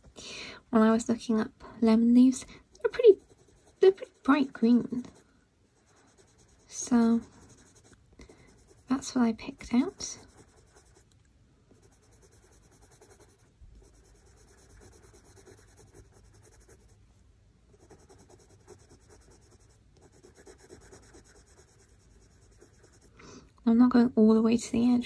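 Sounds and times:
pencil scratching on paper: 2.8 - 11.1, 11.8 - 17.0, 17.7 - 23.2.

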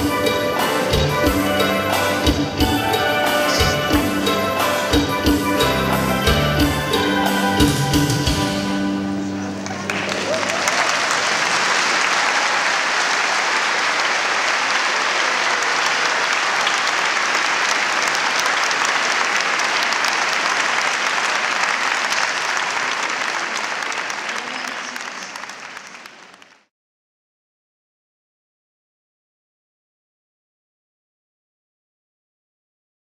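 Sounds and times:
audience applauding: 9.4 - 26.7.

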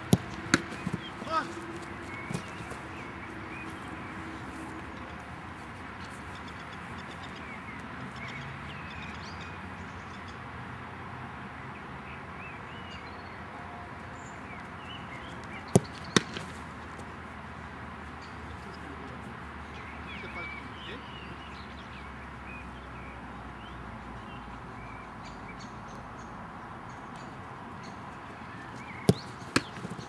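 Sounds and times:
football thuds: 0.0 - 3.0, 15.7 - 16.7, 29.0 - 30.0.

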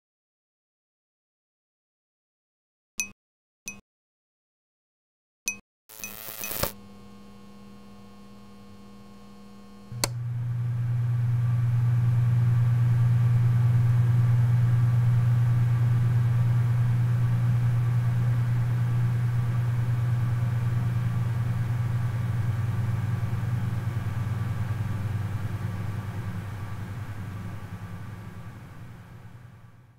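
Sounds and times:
electrical hum: 5.9 - 29.8
switch click: 10.0 - 10.2.

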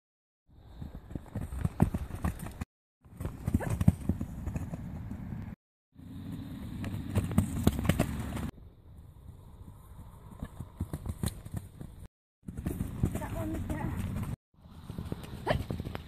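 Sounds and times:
hoofbeats on grass: 0.8 - 5.3, 6.3 - 8.5, 10.3 - 16.0.

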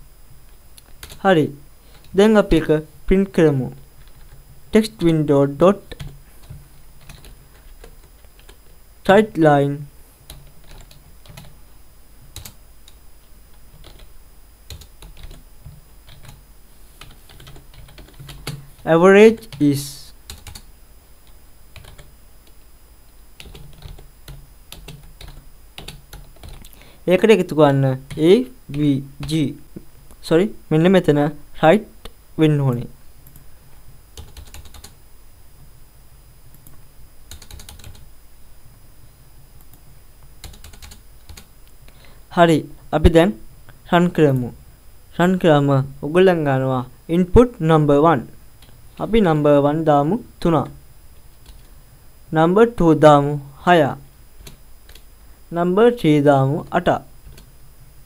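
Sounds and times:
keyboard typing: 0.8 - 1.2, 5.9 - 8.6, 10.2 - 11.5, 12.3 - 14.1, 14.7 - 16.4, 17.0 - 18.8, 20.3 - 20.7, 21.7 - 22.1, 23.4 - 26.7, 34.2 - 35.0, 36.6 - 38.1, 40.4 - 41.5.

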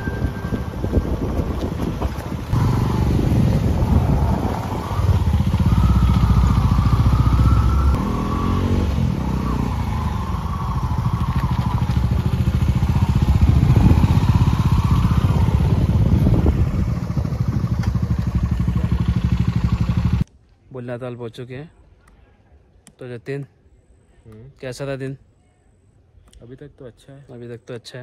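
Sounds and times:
motorcycle engine running: 0.0 - 20.2.

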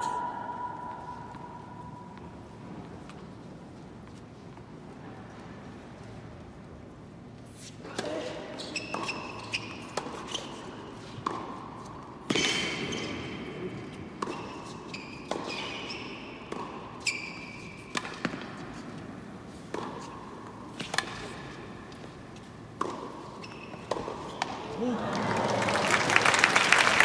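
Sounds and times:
shoes squeaking on court: 7.4 - 24.7
racket striking tennis ball: 8.8 - 24.6.

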